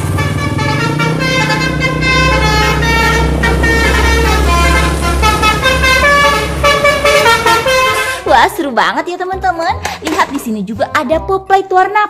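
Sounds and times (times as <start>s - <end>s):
bus engine running: 0.0s - 8.4s
multi-tone bus horn: 0.0s - 8.5s.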